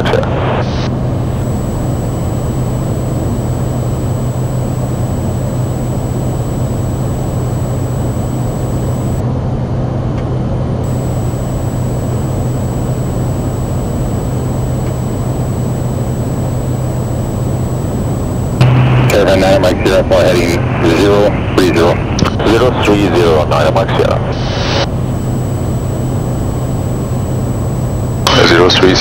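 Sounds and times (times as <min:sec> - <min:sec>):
faint high whine: 0:00.0 - 0:09.2, 0:10.8 - 0:21.8, 0:24.3 - 0:29.0
turboprop engine drone: 0:00.6 - 0:09.2, 0:10.8 - 0:21.0, 0:24.4 - 0:29.0.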